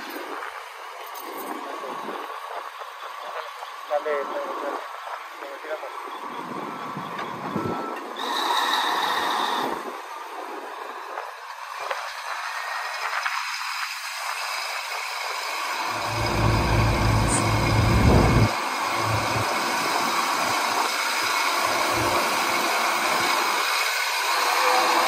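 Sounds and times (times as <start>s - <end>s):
heavy diesel engines running: 15.6s - 25.0s
deep rumble: 15.9s - 19.6s.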